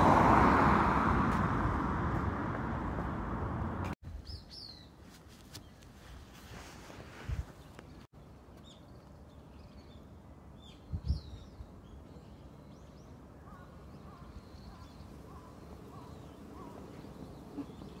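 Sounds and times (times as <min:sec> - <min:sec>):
small birds chirping: 0:04.2 - 0:06.2, 0:07.4 - 0:18.0.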